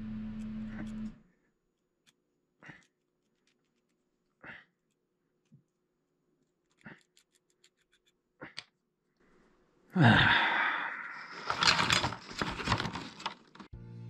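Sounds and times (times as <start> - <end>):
rustling and scraping handling noise: 2.8 - 8.2, 11.3 - 13.7
small clicks: 6.4 - 8.8
man sighing loudly: 9.9 - 11.4.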